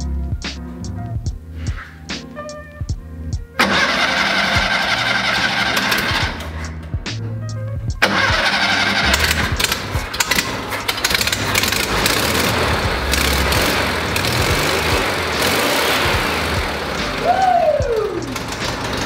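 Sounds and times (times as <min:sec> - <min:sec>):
engine starting and idling: 0:03.6 - 0:06.7, 0:08.0 - 0:17.3, 0:18.2 - 0:19.0.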